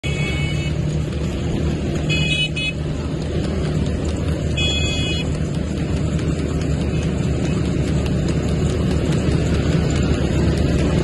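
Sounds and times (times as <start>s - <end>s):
vehicle horns beeping: 0.0s - 0.8s, 2.0s - 2.8s, 4.5s - 5.4s
motorcycle engines running: 0.0s - 11.0s.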